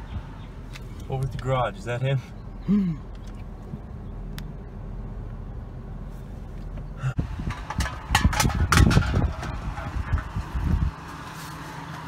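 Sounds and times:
low hum inside vehicle: 0:00.0 - 0:12.0
clunks clicks and rustling: 0:06.5 - 0:10.4.

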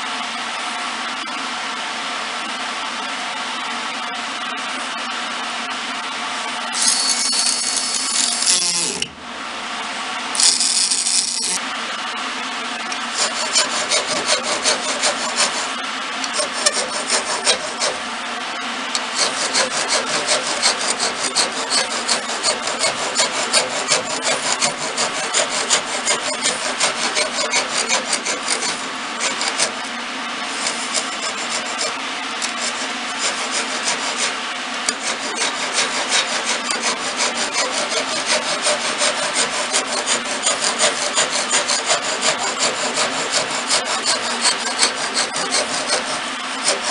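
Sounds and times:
machine hum: 0:00.0 - 0:46.9
rasp scraping wood: 0:06.8 - 0:09.1, 0:10.4 - 0:11.6, 0:13.1 - 0:18.0, 0:19.0 - 0:29.9, 0:30.5 - 0:46.9.

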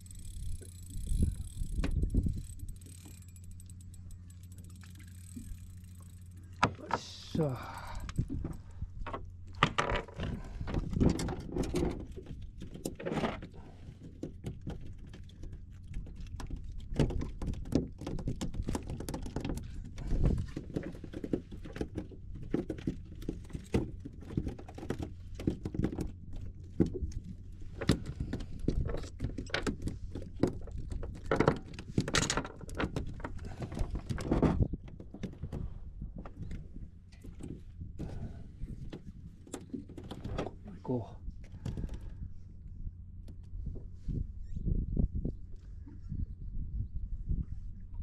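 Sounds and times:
knocks and clatter on boat deck: 0:06.6 - 0:07.3, 0:08.2 - 0:40.7.

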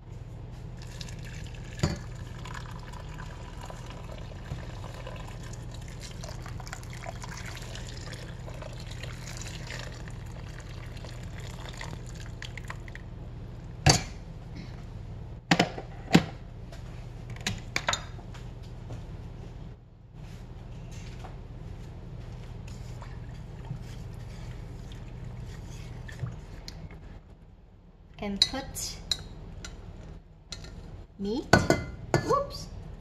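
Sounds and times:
water pouring into a pot: 0:00.8 - 0:13.0.

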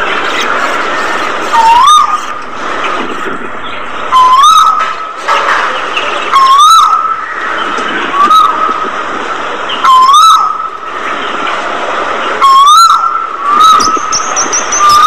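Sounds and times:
budgerigars chattering: 0:00.0 - 0:08.7, 0:12.4 - 0:15.0
whistle-like bird call: 0:01.5 - 0:02.4, 0:12.4 - 0:15.0.

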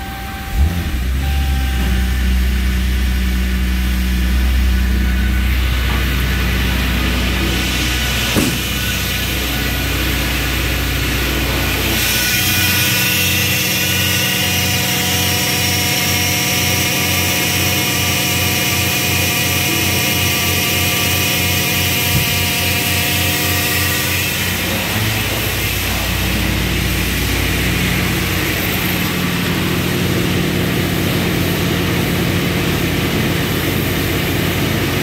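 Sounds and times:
car engine idling: 0:00.0 - 0:12.2.

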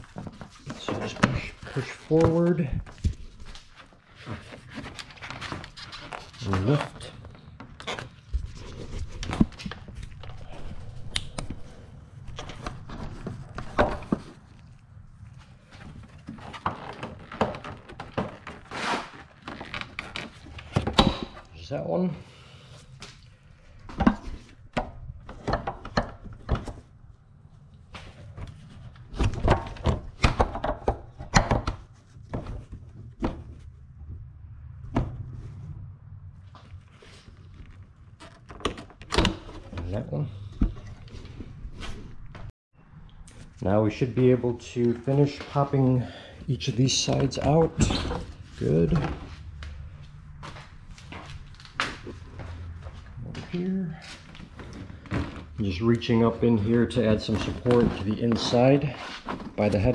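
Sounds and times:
plastic knocks clicks and creaks: 0:23.9 - 0:26.8, 0:29.2 - 0:33.6.

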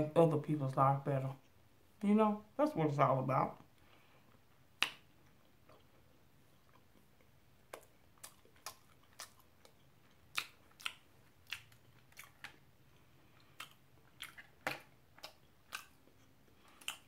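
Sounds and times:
person chewing food: 0:03.6 - 0:17.0.

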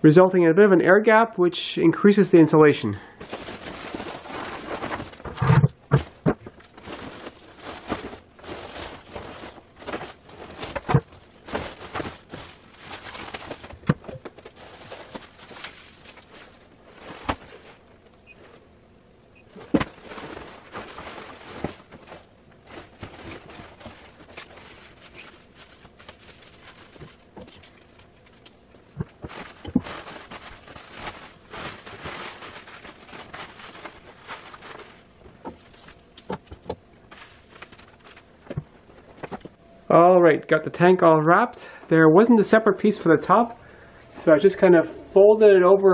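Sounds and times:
insulation blanket crinkling: 0:03.2 - 0:18.6, 0:19.5 - 0:36.2, 0:37.0 - 0:39.2.

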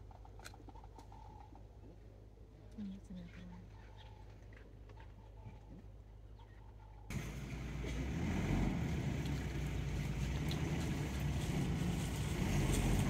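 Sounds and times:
vehicle engine idling: 0:07.1 - 0:13.0.

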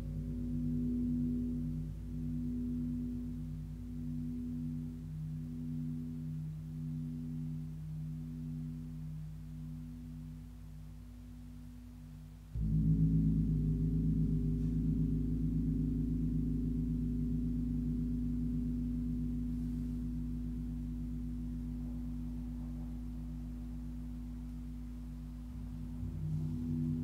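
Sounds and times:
large gong ringing: 0:12.6 - 0:19.4, 0:25.4 - 0:27.0.

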